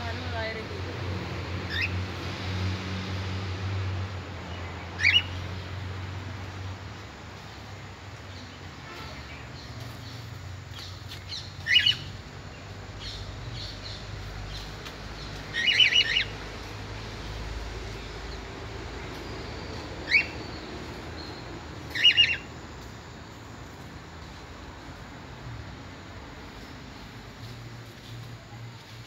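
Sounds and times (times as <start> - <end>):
caged birds squawking: 1.5 - 2.2, 4.6 - 5.8, 10.8 - 22.7.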